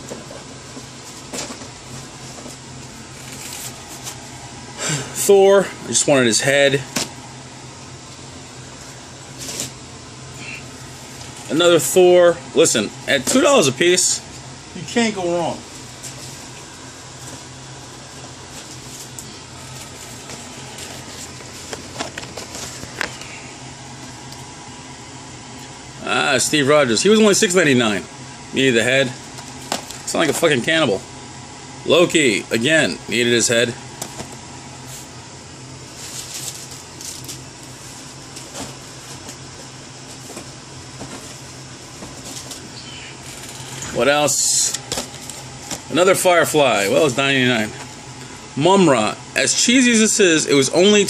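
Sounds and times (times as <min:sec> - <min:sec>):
air conditioner humming: 0:00.0 - 0:51.0
plastic packaging rustling: 0:18.5 - 0:23.3, 0:35.9 - 0:43.9.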